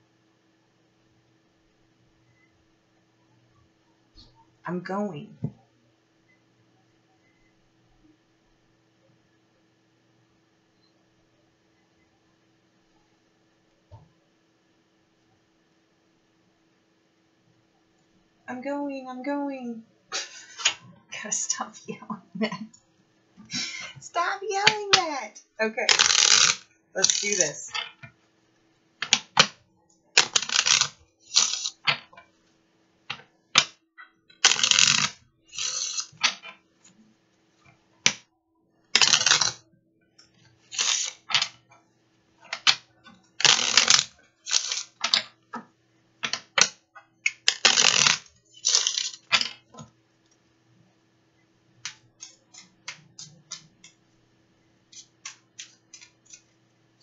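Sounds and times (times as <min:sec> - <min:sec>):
cards shuffling: 0:20.2 - 0:20.8, 0:25.9 - 0:27.8, 0:30.2 - 0:32.0, 0:34.4 - 0:36.6, 0:39.0 - 0:39.6, 0:40.7 - 0:41.6, 0:43.4 - 0:45.2, 0:46.2 - 0:49.6, 0:54.9 - 0:56.4.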